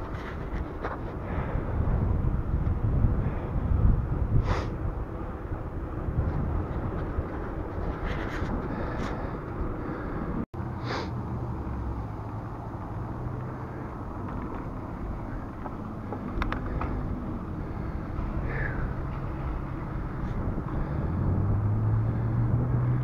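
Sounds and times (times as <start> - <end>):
wind rumbling on microphone: 0.0 - 10.5, 11.2 - 23.0
short hisses: 10.8 - 11.2.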